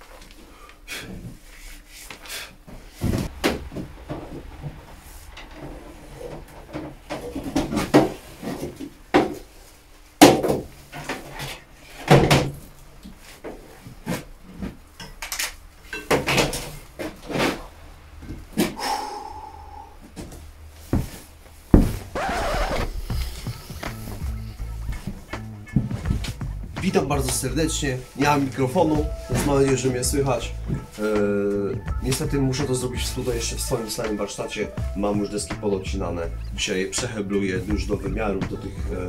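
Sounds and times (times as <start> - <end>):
wooden knocks and thuds: 3.0 - 9.4, 21.0 - 22.2.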